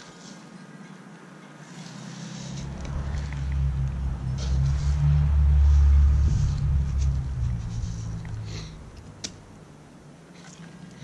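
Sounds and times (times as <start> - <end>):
wind buffeting microphone: 2.6 - 9.6.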